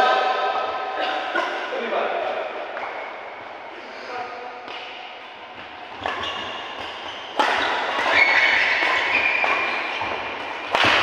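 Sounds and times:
racket hitting shuttlecock: 5.6s - 11.0s.

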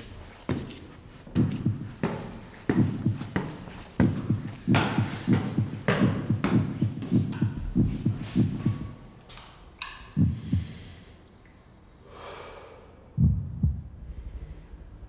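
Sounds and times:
footsteps on tiled stairs: 0.0s - 9.0s
dull low thumps: 1.4s - 2.0s, 2.7s - 3.4s, 4.0s - 9.0s, 10.2s - 10.9s, 13.2s - 15.0s.

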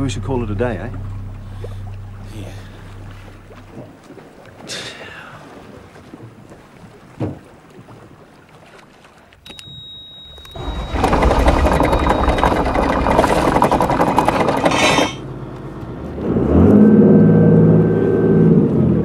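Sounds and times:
boat engine revving up: 0.0s - 4.0s, 10.3s - 19.0s
diesel engine cranking and starting: 10.3s - 15.4s.

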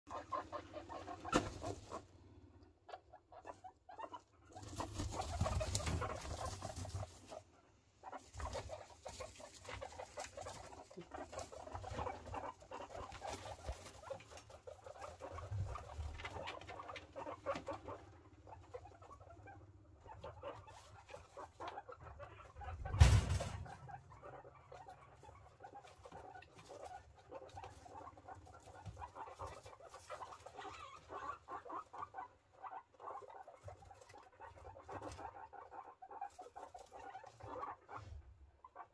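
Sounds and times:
guinea pig calls: 0.1s - 38.9s
rustling in wood shavings: 8.2s - 16.7s.

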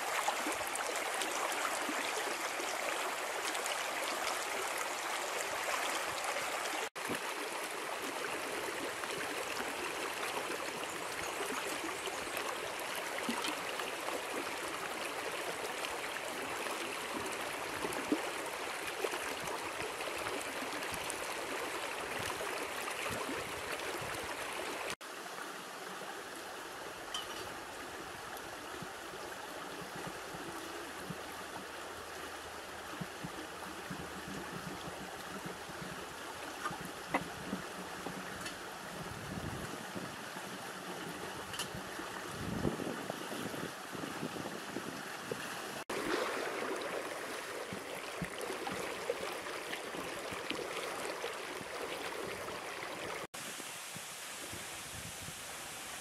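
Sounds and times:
stream water flowing: 0.0s - 56.0s.

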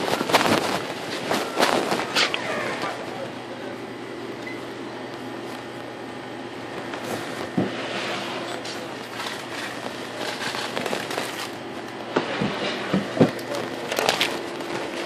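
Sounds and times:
cloth rustling against microphone: 0.0s - 2.4s
sharp crackles and knocks: 0.0s - 3.1s, 6.7s - 15.0s.

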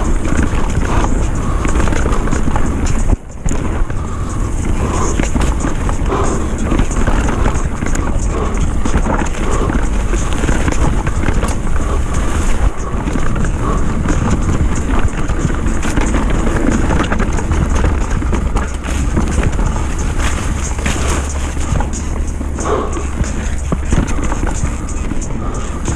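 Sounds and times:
bike clicking and rattling: 0.0s - 25.9s
tyres rumbling on dirt: 0.0s - 25.9s
wind on microphone: 0.0s - 25.9s.

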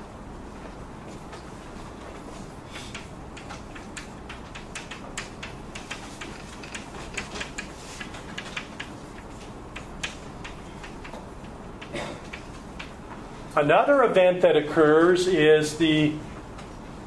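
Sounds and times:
room noise hiss: 0.0s - 17.0s
taps of writing on a board: 2.8s - 13.0s.

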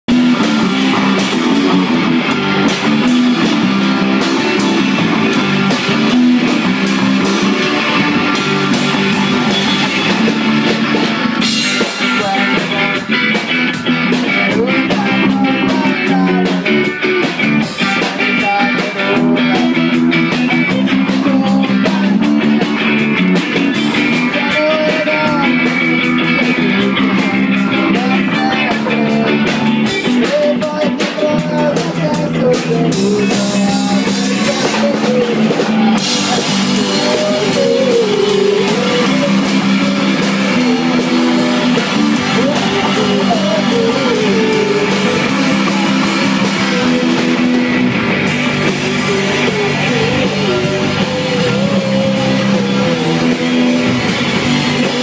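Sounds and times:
distorted electric guitars: 0.0s - 55.0s
drum kit: 0.0s - 55.0s.

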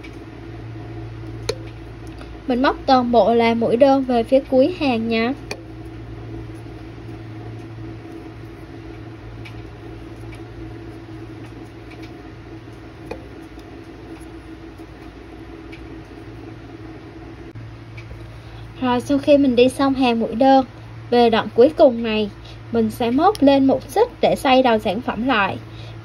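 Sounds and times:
low background hum: 0.0s - 26.0s.

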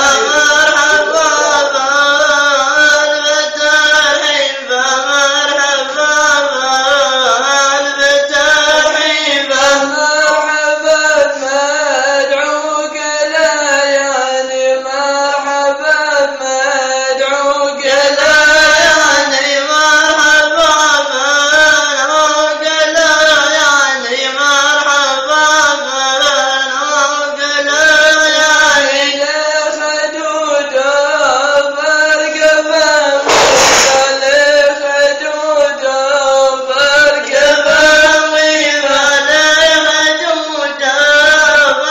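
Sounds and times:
men chanting unaccompanied: 0.0s - 41.9s.

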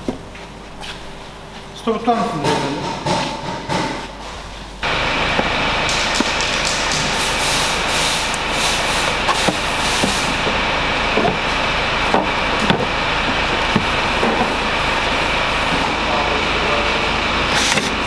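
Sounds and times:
high whine: 4.6s - 18.0s.

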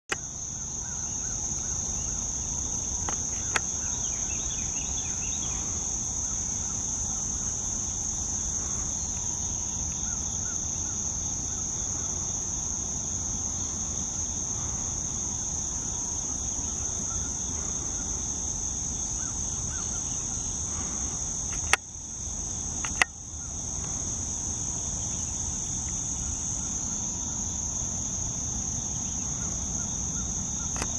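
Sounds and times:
insects chorus: 0.1s - 30.9s
sharp clicks: 22.8s - 23.1s.

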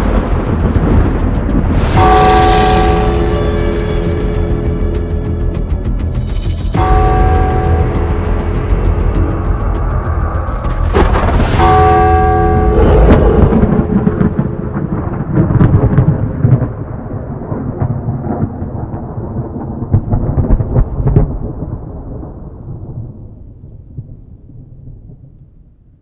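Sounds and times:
thunder rumbling and cracking: 0.0s - 26.0s
held chord of tones: 1.8s - 15.6s.

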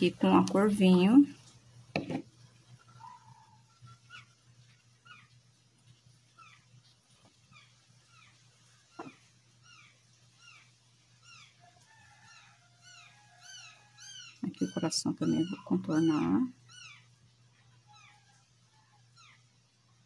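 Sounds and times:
low steady hum: 0.0s - 20.0s
high chirping calls of small animal: 2.9s - 5.4s, 6.3s - 6.8s, 7.4s - 11.6s, 12.3s - 17.1s, 17.8s - 19.6s.

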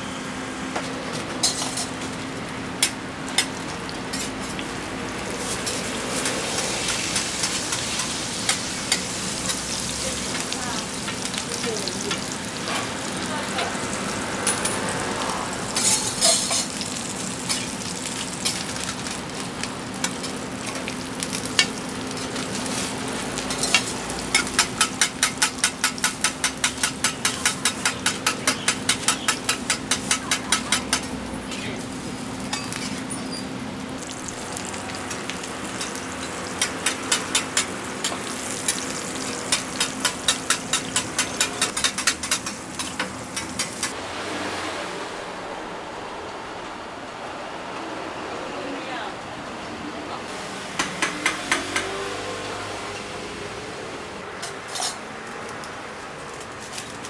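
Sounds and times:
buns sizzling in oil: 1.4s - 44.0s
metal spatula tapping griddle: 23.6s - 31.1s, 39.5s - 43.9s.

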